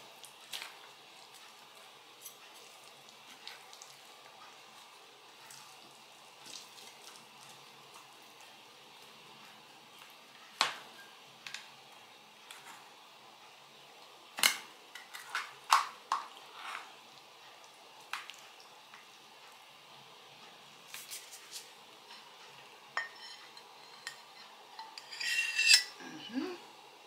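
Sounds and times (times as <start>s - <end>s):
metal clinking on ceramic plate: 23.0s - 26.0s
pie server scraping metal tin: 24.8s - 26.0s.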